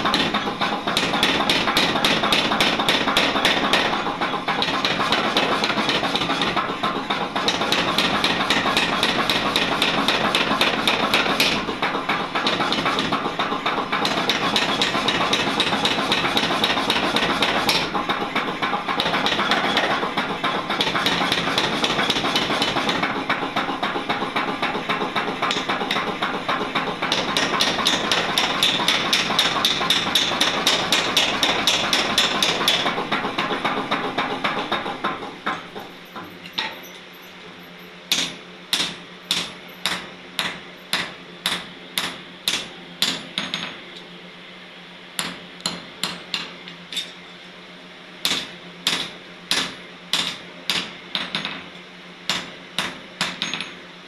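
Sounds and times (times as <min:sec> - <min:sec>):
power hammer pounding steel: 0:00.0 - 0:36.8, 0:38.1 - 0:43.8, 0:45.2 - 0:47.1, 0:48.2 - 0:53.8
hand hammer striking chisel on anvil: 0:38.1 - 0:43.8, 0:48.2 - 0:51.6.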